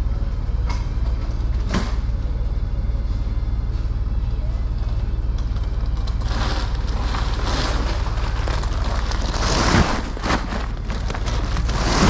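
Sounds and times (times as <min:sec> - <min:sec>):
vehicle engine humming: 0:00.0 - 0:12.0
rustling: 0:06.2 - 0:12.0.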